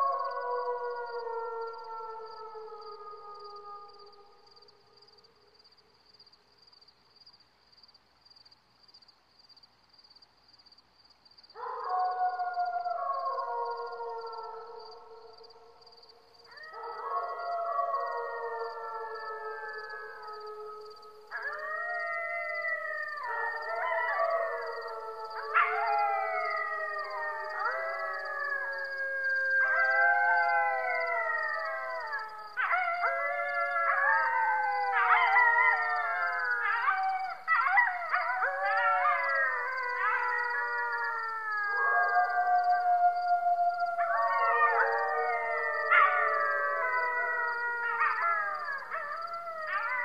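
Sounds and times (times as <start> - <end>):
dogs howling: 16.5 - 50.0.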